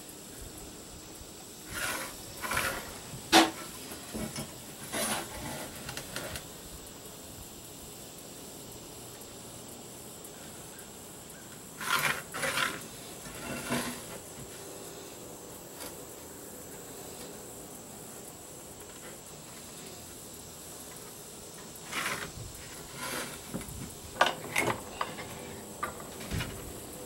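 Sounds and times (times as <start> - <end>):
faint steady hiss: 0.0 - 27.0
pencil scratching on plywood: 1.7 - 3.0, 11.8 - 14.1, 21.8 - 23.6.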